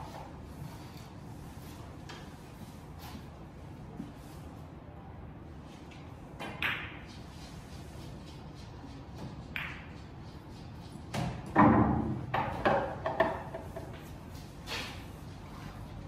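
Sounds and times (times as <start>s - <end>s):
pool balls clicking together: 9.1s - 10.5s.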